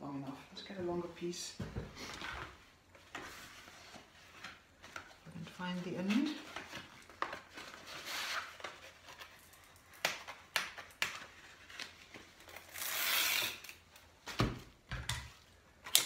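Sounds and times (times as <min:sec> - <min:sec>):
velcro tape clicks and scratches: 0:08.3 - 0:14.0
velcro tape ripping: 0:12.5 - 0:13.8.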